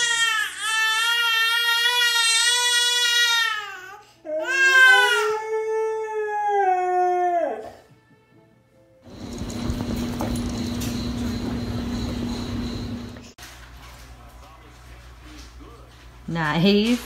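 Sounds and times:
baby crying: 0:00.0 - 0:07.8.

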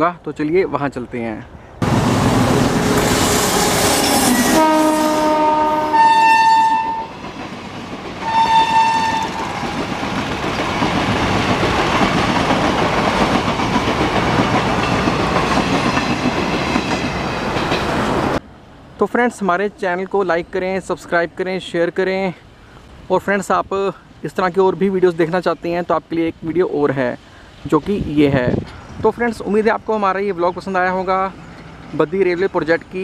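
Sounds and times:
train coaches rumbling: 0:01.8 - 0:18.4, 0:23.2 - 0:33.0
train horn blasts: 0:03.2 - 0:07.2, 0:08.2 - 0:09.7.

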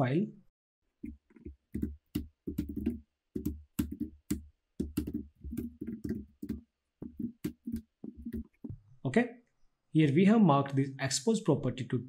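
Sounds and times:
typing on computer keyboard: 0:01.3 - 0:08.6.

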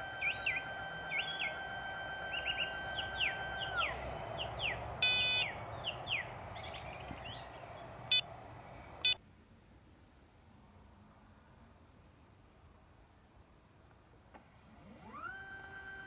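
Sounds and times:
birds chirping: 0:00.0 - 0:09.2
motor whining: 0:00.0 - 0:09.2, 0:14.6 - 0:16.0
electronic beeps: 0:05.0 - 0:05.5.

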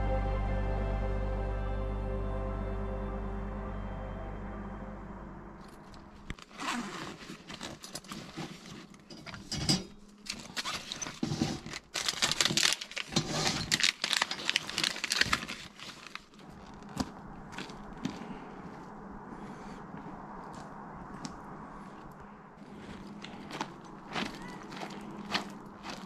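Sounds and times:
crinkling and rustling: 0:05.7 - 0:19.0, 0:20.0 - 0:26.0.

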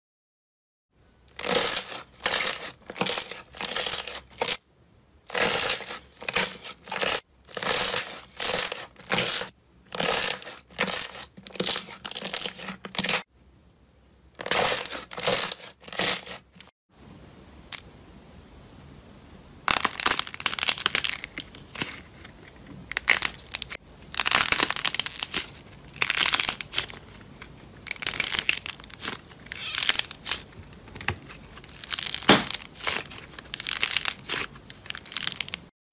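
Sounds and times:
quiet steady hiss: 0:01.0 - 0:03.6, 0:04.2 - 0:08.2, 0:13.3 - 0:14.4, 0:16.9 - 0:26.0
slime squishing and crackling: 0:01.3 - 0:04.6, 0:05.3 - 0:13.3, 0:19.7 - 0:22.1, 0:22.8 - 0:35.7.

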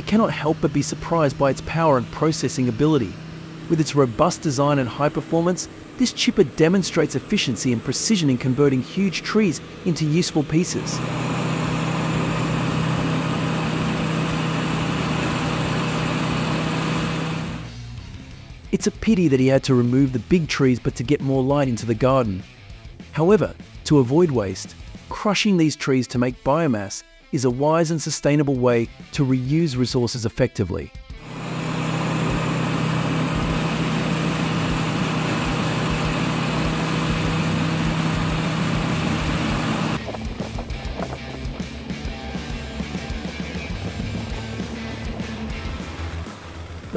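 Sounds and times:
wood chipper engine drone: 0:00.0 - 0:18.7, 0:31.2 - 0:46.9
constant low hum: 0:31.2 - 0:46.9.

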